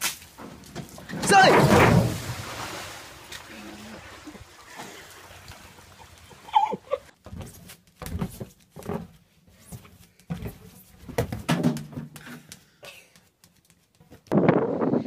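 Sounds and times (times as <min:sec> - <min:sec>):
thuds of bouncing on exercise ball: 0:07.2 - 0:12.4.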